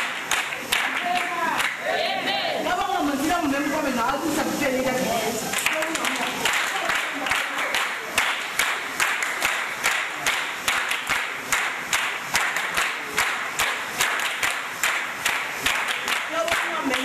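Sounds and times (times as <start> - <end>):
crowd clapping in time: 0.0 - 1.8, 5.5 - 17.0
hubbub of many people: 0.0 - 17.0.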